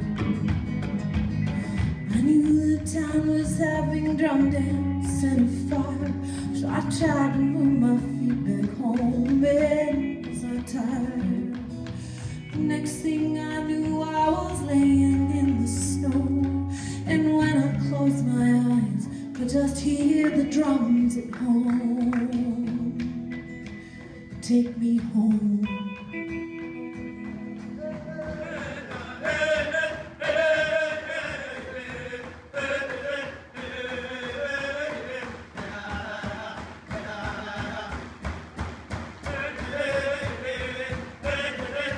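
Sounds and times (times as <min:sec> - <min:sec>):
hand drums: 0:00.0 - 0:18.0, 0:19.4 - 0:41.9
bass guitar: 0:00.0 - 0:30.8
acoustic and electric guitars: 0:00.0 - 0:41.9
live band music: 0:23.0 - 0:32.5
person singing: 0:27.8 - 0:38.1.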